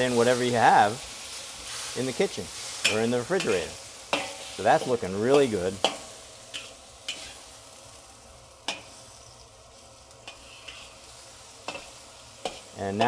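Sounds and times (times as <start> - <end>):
food sizzling in wok: 0.0 - 13.0
spatula clacking on wok: 2.8 - 4.9, 5.8 - 7.3, 8.7 - 9.0, 11.6 - 13.0.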